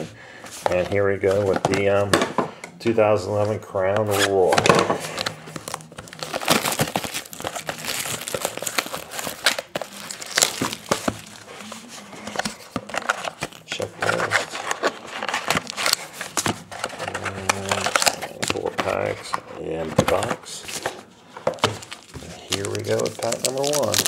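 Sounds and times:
plastic wrapping crinkling and tearing: 4.1s - 24.0s
foil card pack handled: 20.0s - 24.0s.

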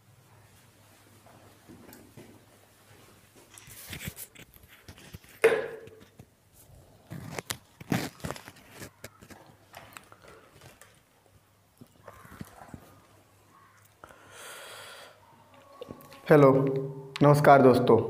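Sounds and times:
handling rustling: 7.1s - 11.1s.

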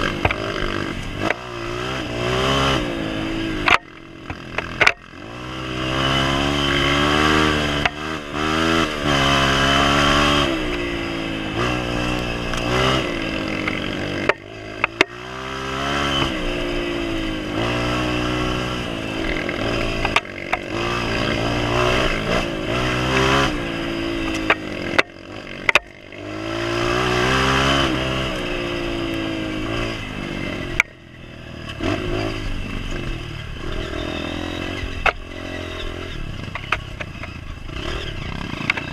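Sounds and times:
motorcycle engine revving: 0.0s - 38.9s
bike knocking and clattering: 3.6s - 5.1s, 13.6s - 15.2s, 19.4s - 20.8s.

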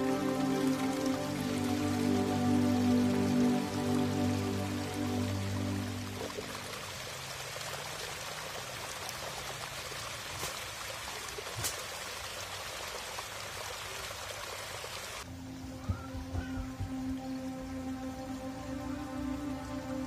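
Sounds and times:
background music: 0.0s - 6.8s, 15.3s - 20.0s
water pouring from pipe: 0.0s - 15.2s.

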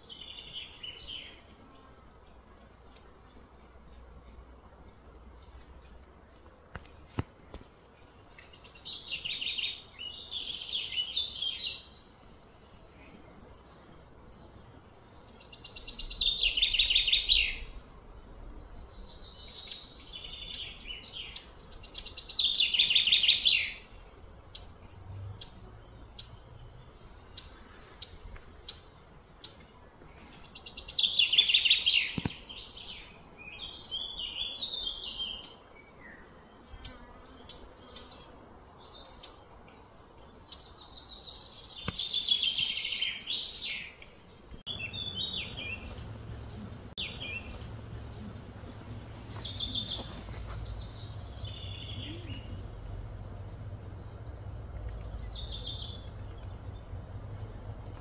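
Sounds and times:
bird chirps: 6.5s - 58.0s
songbird trilling: 14.6s - 29.6s, 44.7s - 57.6s.

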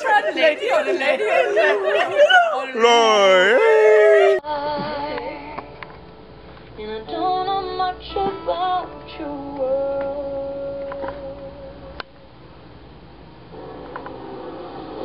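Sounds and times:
quiet music: 4.4s - 12.1s.

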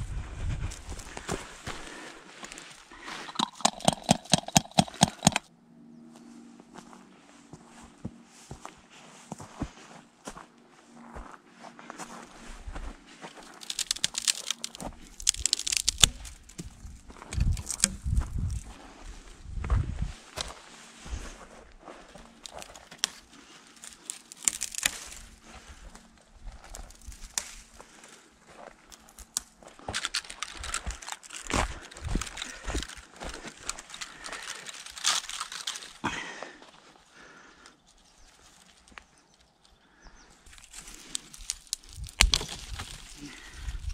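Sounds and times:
footsteps crunching on dry grass: 0.0s - 5.4s, 6.1s - 43.9s
twigs crackling and snapping: 0.6s - 5.5s, 13.2s - 19.1s, 20.3s - 20.6s, 22.0s - 43.9s.

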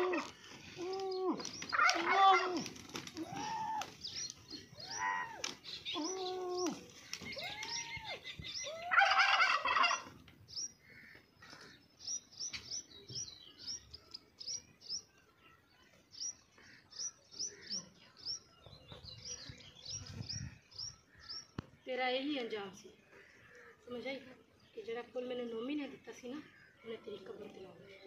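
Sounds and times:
small birds chirping: 0.0s - 28.0s
fowl calls: 8.6s - 10.2s.

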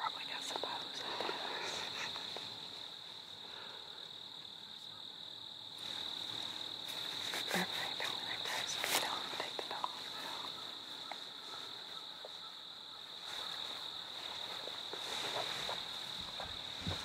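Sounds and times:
high-pitched insect chorus: 0.0s - 17.0s
soft clicks and rustles: 13.3s - 17.0s.

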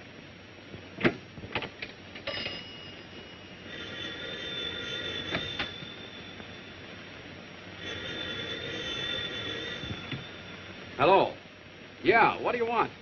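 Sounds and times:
old telephone bell ringing: 2.2s - 11.4s.

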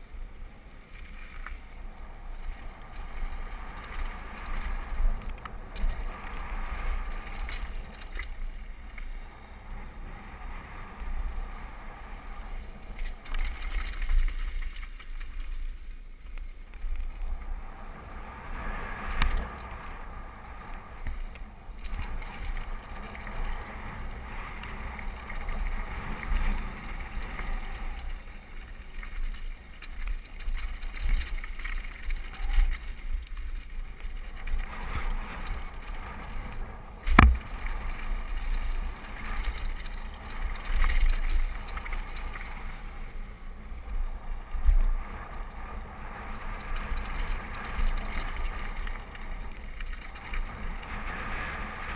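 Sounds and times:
wind buffeting microphone: 29.6s - 51.9s
bike knocks and rattles: 37.0s - 38.0s.

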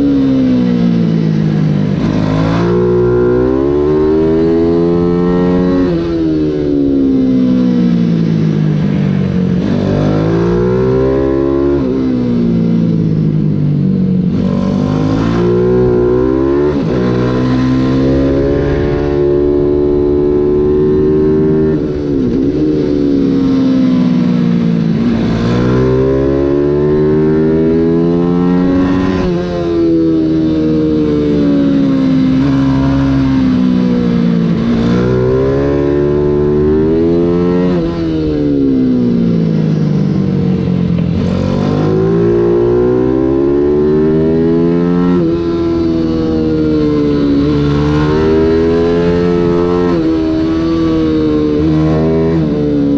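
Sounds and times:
race bike engine revving: 14.3s - 24.3s, 41.0s - 52.9s.

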